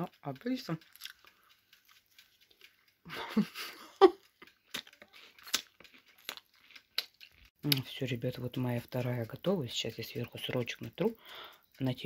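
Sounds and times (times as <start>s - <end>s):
crunching and chewing: 0.8s - 2.9s, 4.2s - 7.9s.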